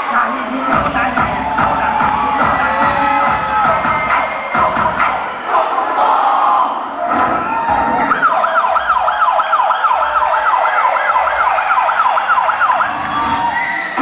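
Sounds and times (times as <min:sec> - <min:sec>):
wailing siren sound effect: 0:07.4 - 0:14.0.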